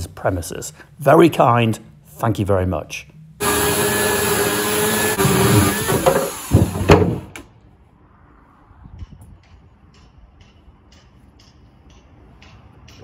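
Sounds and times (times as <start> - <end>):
electric chainsaw cutting wood: 3.4 - 7.3.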